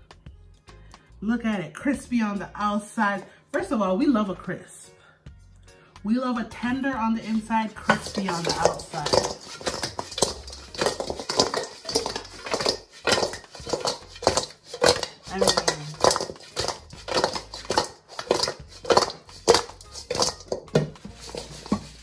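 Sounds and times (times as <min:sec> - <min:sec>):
metal utensils scraping cookware: 0:06.6 - 0:22.0.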